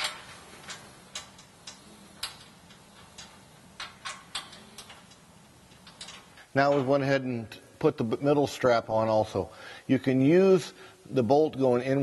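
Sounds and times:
metallic clicks of bolt hardware: 0.0s - 6.3s.

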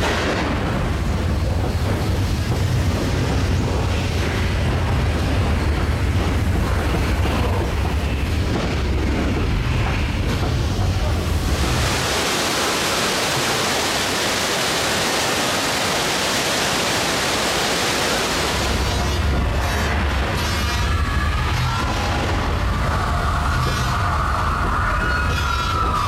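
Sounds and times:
deep rumble: 0.0s - 12.2s
water rushing: 0.0s - 19.5s.

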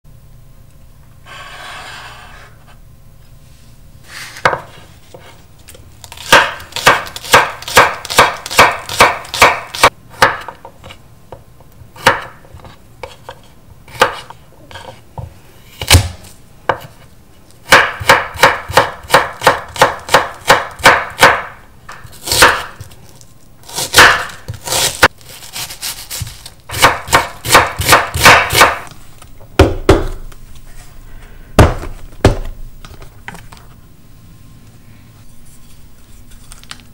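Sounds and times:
knife chopping on wooden board: 6.1s - 10.6s, 12.0s - 12.4s, 13.9s - 15.0s, 17.6s - 21.6s, 22.2s - 22.9s, 23.7s - 28.9s, 29.6s - 30.3s, 31.6s - 32.5s.

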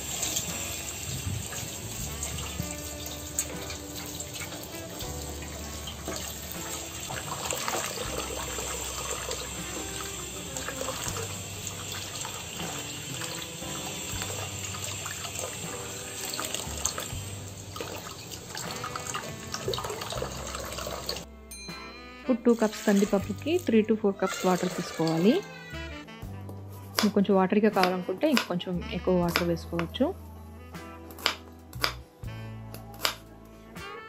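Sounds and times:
tap water running into metal bowl: 0.0s - 21.3s, 22.5s - 25.6s
vegetables rinsed by hand: 0.0s - 21.3s, 22.4s - 25.8s.

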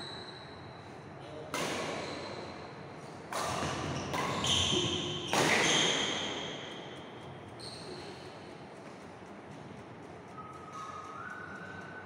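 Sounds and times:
racket hitting shuttlecock: 1.5s - 2.0s, 3.3s - 7.2s
shoes squeaking on wooden court: 1.8s - 2.6s, 3.4s - 6.8s, 7.6s - 8.5s.

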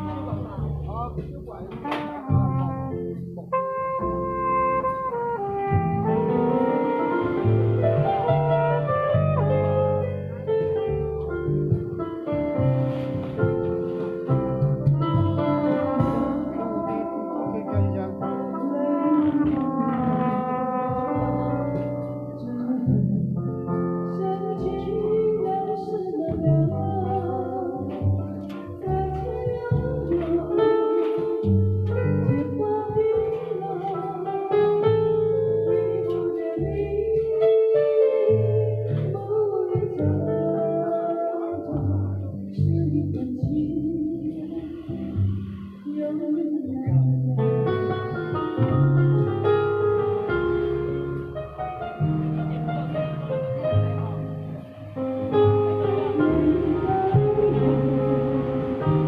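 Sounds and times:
bass line: 0.0s - 37.5s, 38.2s - 59.0s
amplified backing music: 0.0s - 59.0s
keyboard melody: 0.0s - 59.0s
trumpet playing: 1.8s - 10.7s, 15.1s - 22.5s, 48.9s - 59.0s
woman singing into microphone: 22.4s - 28.1s, 28.8s - 34.8s, 35.9s - 44.9s, 45.9s - 47.6s, 56.2s - 59.0s.

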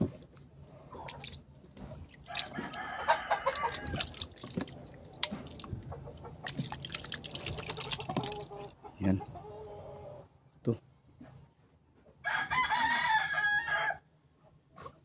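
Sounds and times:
hand splashing water in tub: 0.0s - 8.8s
rooster crowing: 2.3s - 4.2s, 12.2s - 14.1s.

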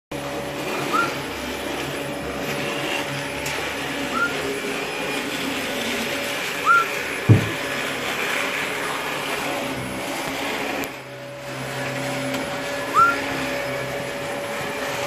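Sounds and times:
parrot whistling: 0.9s - 1.2s, 4.1s - 4.4s, 6.6s - 6.9s, 12.9s - 13.2s.

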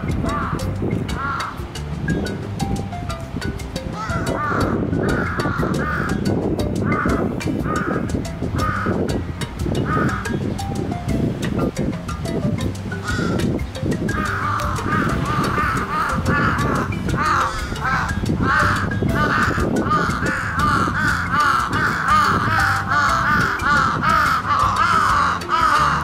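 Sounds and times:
crows cawing: 0.2s - 1.7s, 3.9s - 9.2s, 9.8s - 10.5s, 13.0s - 26.0s.

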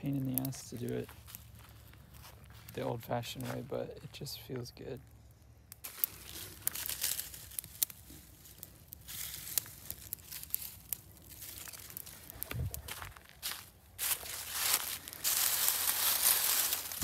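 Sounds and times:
campfire crackling: 0.0s - 17.0s
rustling: 5.8s - 17.0s.

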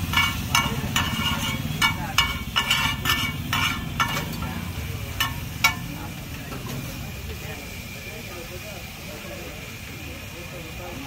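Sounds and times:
metal spatula scraping a griddle: 0.0s - 5.9s.

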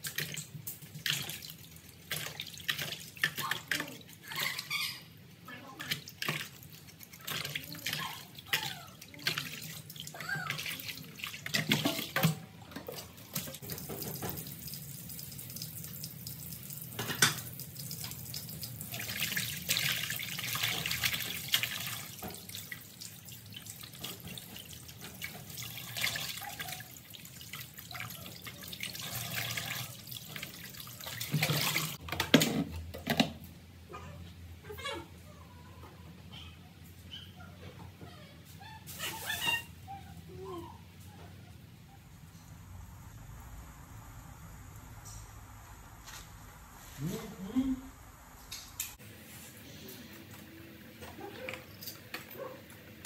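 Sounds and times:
tap water running into basin: 5.8s - 32.4s.

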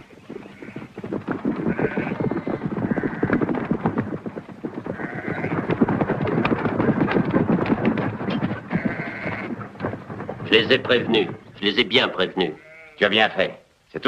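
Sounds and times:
horses hooves galloping: 0.0s - 14.0s
sheep bleating: 1.7s - 3.4s, 5.0s - 5.6s, 8.7s - 9.6s, 12.2s - 13.1s.

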